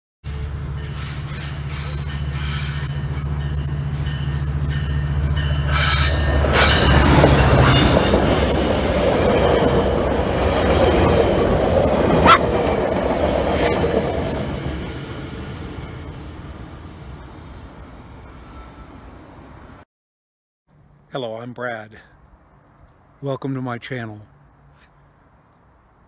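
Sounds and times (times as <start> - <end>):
train wheels squealing: 0.3 - 8.8, 18.3 - 19.1
train rolling on rails: 0.3 - 19.8.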